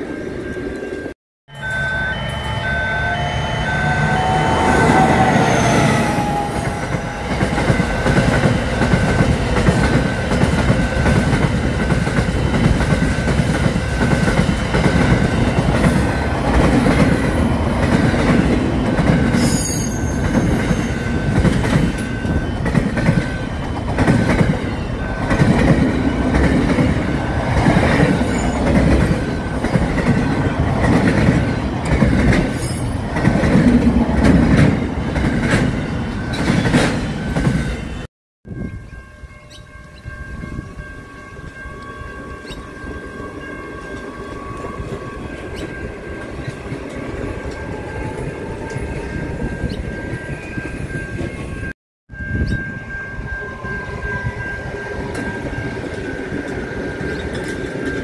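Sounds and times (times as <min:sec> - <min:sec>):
faint pulsing high tone: 0:00.0 - 0:08.4
train wheels rumbling on rails: 0:02.7 - 0:38.8, 0:39.4 - 0:58.0.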